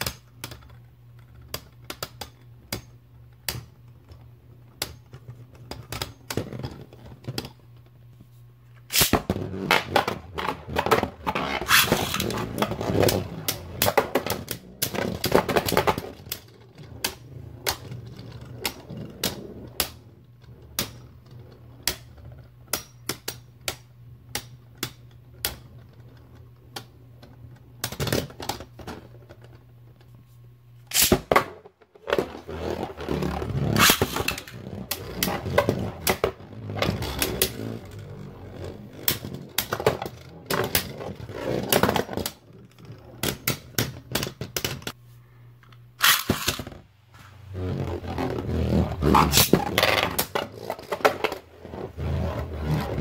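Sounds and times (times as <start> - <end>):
low whir of spinning tops: 8.8 - 22.6, 32.1 - 44.2, 45.9 - 53.0
spinning tops clicking and clashing: 8.9 - 9.2, 11.6 - 12.5, 30.9 - 31.3, 33.7 - 34.6, 46.0 - 46.7.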